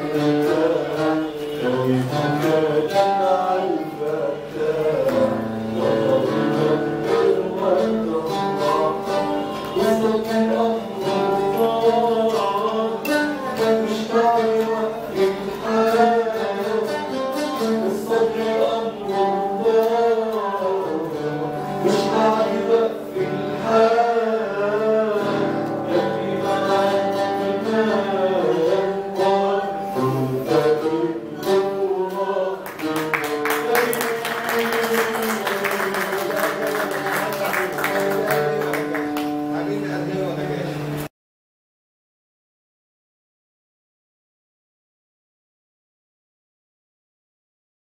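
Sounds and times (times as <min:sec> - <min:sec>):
man singing: 0:00.0 - 0:39.1
oud strumming and plucking: 0:00.0 - 0:41.1
audience clapping: 0:32.6 - 0:39.5.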